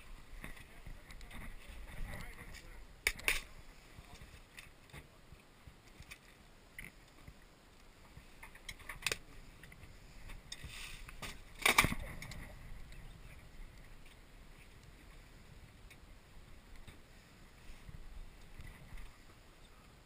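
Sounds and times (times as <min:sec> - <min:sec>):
faint wind: 0:00.0 - 0:20.0
water: 0:00.0 - 0:20.0.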